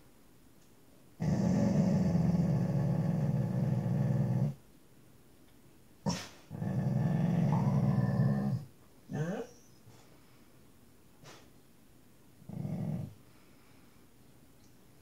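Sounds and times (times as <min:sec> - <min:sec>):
puppy growling: 0:01.2 - 0:04.6, 0:06.1 - 0:09.7, 0:12.4 - 0:13.2.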